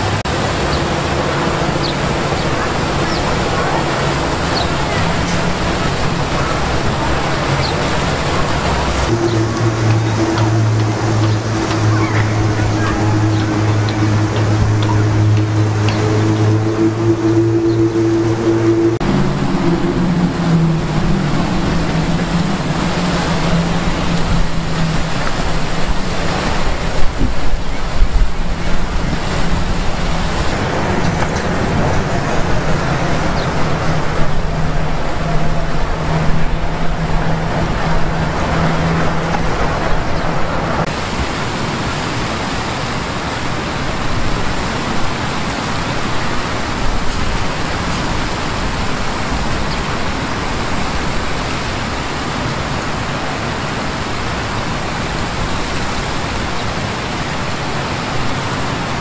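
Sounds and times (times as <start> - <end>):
low steady hum: 0.0 - 45.1
city traffic: 0.0 - 59.0
fountain water splashing: 0.0 - 59.0.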